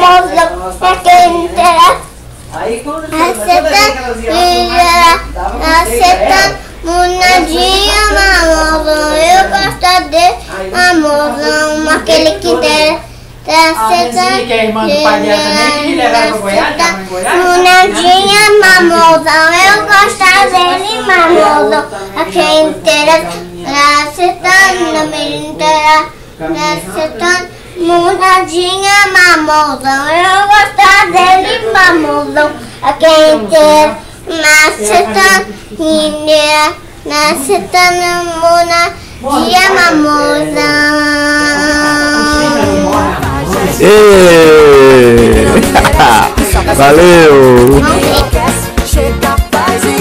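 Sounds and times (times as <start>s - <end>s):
girl singing: 0.0s - 2.1s, 3.2s - 26.1s, 26.7s - 50.0s
girl breathing: 38.9s - 39.3s.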